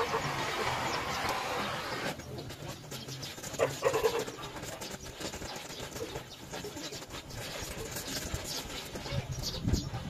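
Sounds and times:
welding torch flame hissing: 0:00.0 - 0:02.2.

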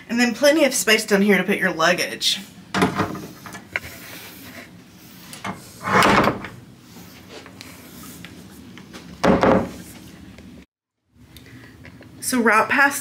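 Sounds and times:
wooden closet doors bumping shut: 0:02.7 - 0:03.2, 0:05.9 - 0:06.6, 0:09.2 - 0:09.7.

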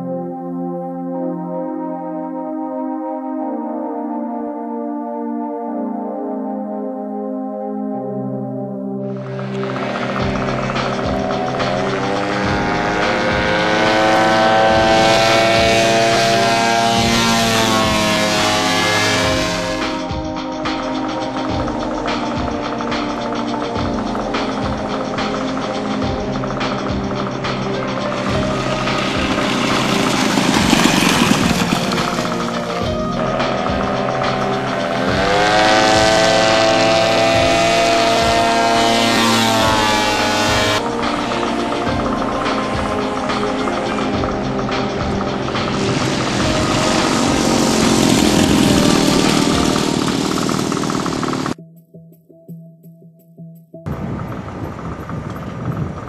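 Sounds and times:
propeller engine throttling up: 0:09.1 - 0:51.6, 0:53.9 - 0:56.0.

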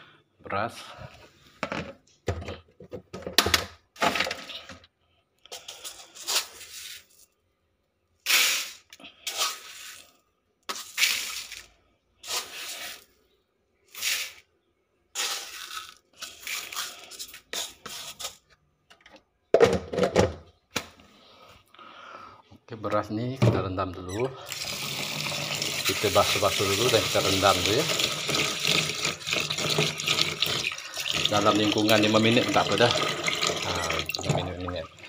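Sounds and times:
dry rice pouring into plastic basin: 0:24.6 - 0:33.1.

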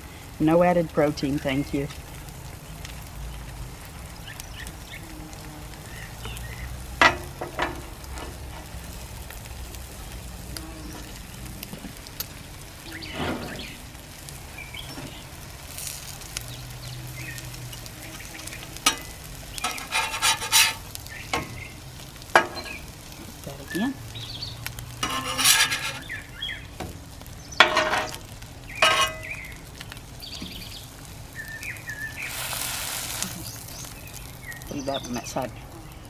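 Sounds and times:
meat sizzling on griddle: 0:00.0 - 0:36.0
metal spatula scraping steel plate: 0:18.9 - 0:20.9, 0:25.0 - 0:26.1, 0:28.8 - 0:29.3.

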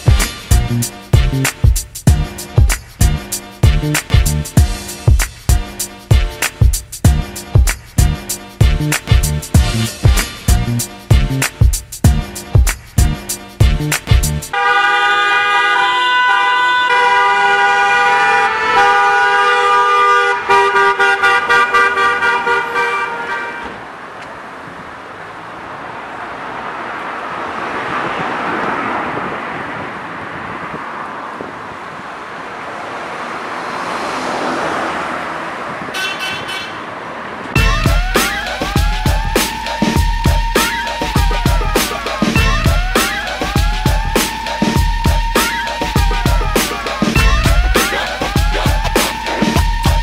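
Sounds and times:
car horns honking: 0:00.0 - 0:05.0, 0:13.4 - 0:24.0, 0:33.8 - 0:50.0
cars passing on road: 0:00.0 - 0:50.0.

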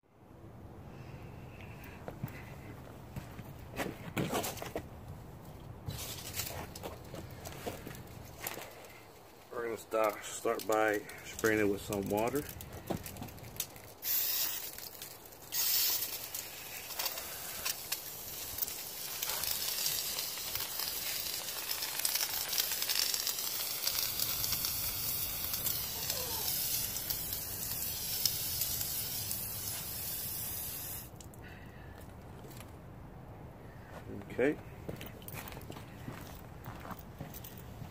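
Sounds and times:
hose spraying water: 0:13.9 - 0:31.2.

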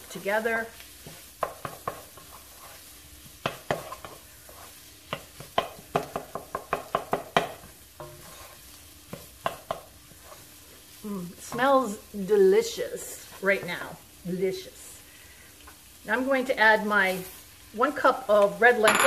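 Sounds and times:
wooden spoon scraping a pan: 0:00.0 - 0:14.0
food sizzling in a pan: 0:00.0 - 0:19.0.

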